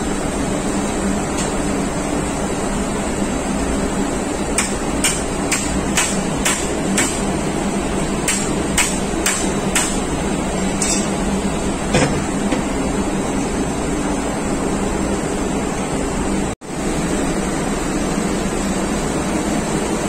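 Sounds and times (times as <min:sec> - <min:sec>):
machinery hum: 0:00.0 - 0:20.0
hammer on metal tool: 0:04.6 - 0:07.3, 0:08.2 - 0:10.0, 0:10.8 - 0:11.1.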